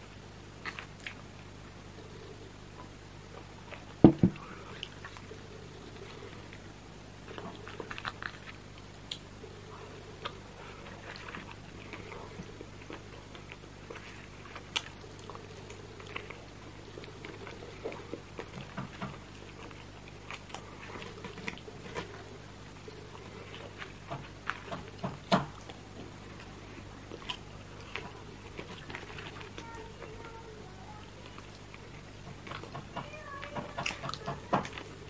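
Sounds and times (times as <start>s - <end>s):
close chewing and mouth sounds: 0.0s - 35.0s
low steady hum: 0.0s - 35.0s.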